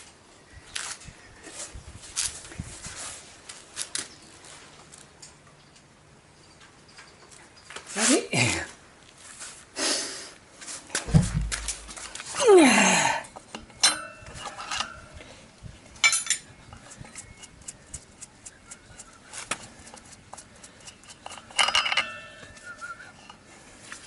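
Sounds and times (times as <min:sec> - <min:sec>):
dull thump: 0:11.0 - 0:11.9
metal clinks of tools: 0:13.5 - 0:15.0, 0:16.0 - 0:17.5, 0:21.2 - 0:22.6.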